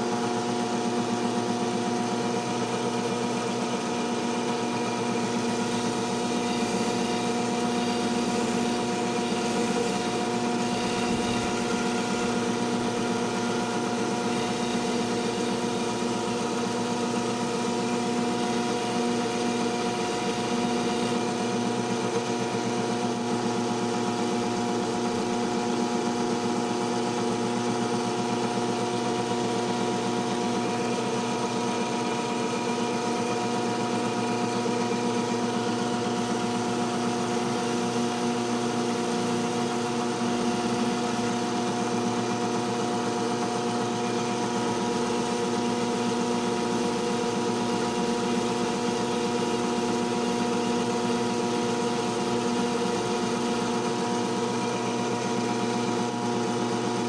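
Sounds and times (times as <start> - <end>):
electric motor humming: 4.8 - 22.7.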